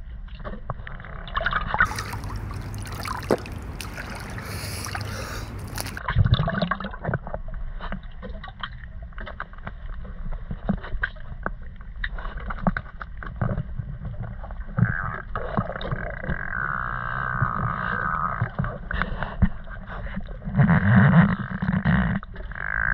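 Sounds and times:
water swirling underwater: 1.3 - 7.1
underwater clicks and knocks: 1.7 - 4.4.

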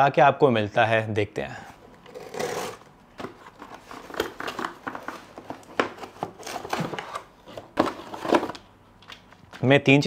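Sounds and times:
box cutter slicing cardboard: 2.1 - 2.8.

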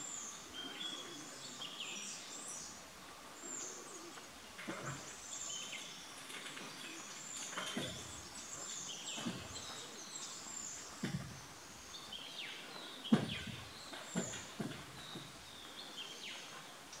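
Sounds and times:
faint background hiss: 0.0 - 17.0
birds chirping and whistling: 6.8 - 16.5.

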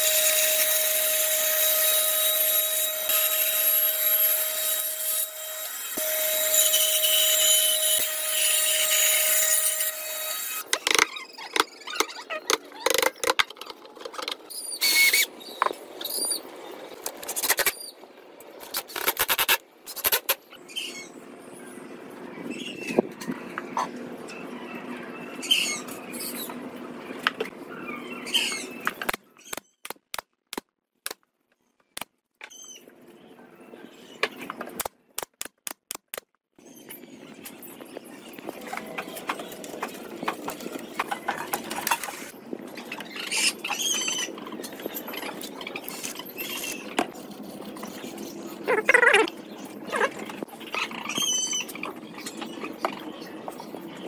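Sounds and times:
birds chirping: 36.6 - 54.0.

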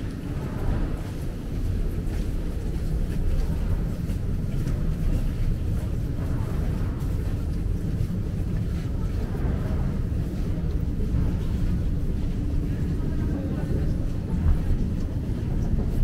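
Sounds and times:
footsteps: 0.0 - 12.9
faint voices: 0.0 - 16.0
low rumble of metro passage: 0.0 - 16.0.

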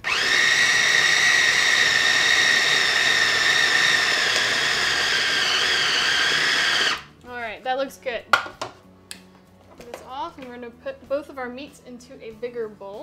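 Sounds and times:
food processor motor whining: 0.0 - 7.1.

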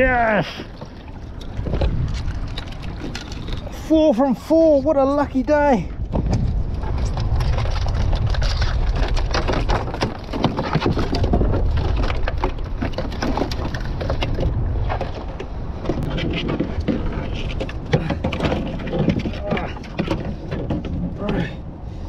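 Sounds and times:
wind rumbling on microphone: 0.0 - 22.0
clicks and scrapes of crab and net: 1.3 - 4.2, 6.2 - 21.2.

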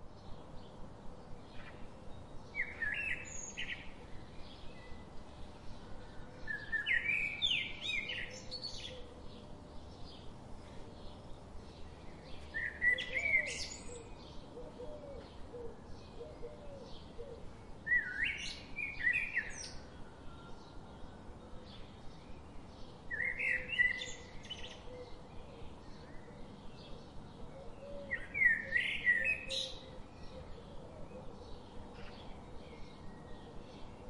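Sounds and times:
songbird singing warbled phrases: 1.4 - 5.8, 6.4 - 10.3, 11.0 - 14.6, 17.8 - 19.9, 21.7 - 34.0.

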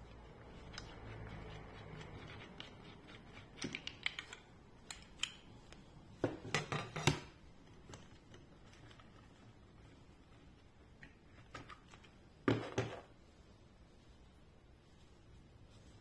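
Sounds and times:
plastic and metal parts clicking: 3.3 - 5.4.

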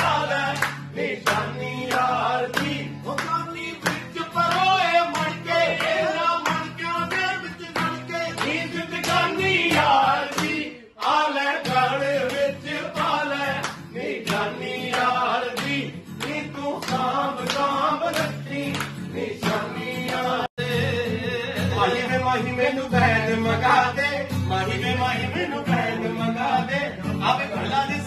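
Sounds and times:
hand claps: 0.0 - 20.6
men singing together: 0.0 - 28.0
strummed acoustic guitar: 0.0 - 28.0.

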